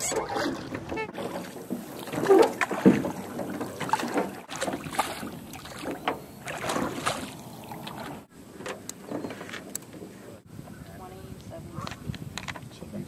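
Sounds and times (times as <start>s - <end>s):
paddle splashes: 0.0s - 9.5s
knocks and bumps in boat: 0.0s - 9.7s.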